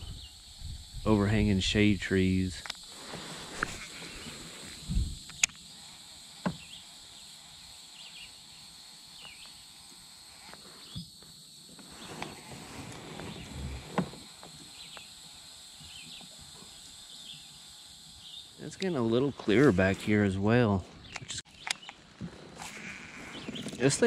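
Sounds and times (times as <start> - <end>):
high insect drone: 0.0 - 24.0.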